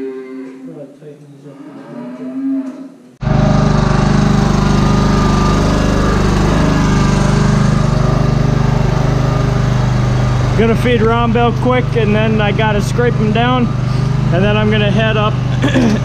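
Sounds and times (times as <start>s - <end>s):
cattle mooing: 0.0s - 0.7s, 1.5s - 3.0s
machine drone: 3.2s - 16.0s.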